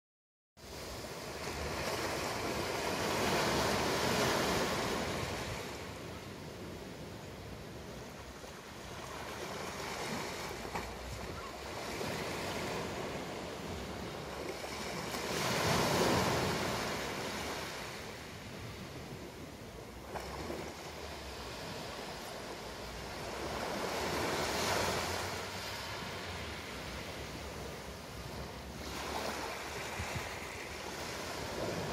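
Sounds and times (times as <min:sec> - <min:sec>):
waves washing on shingle beach: 0:08.5 - 0:31.9.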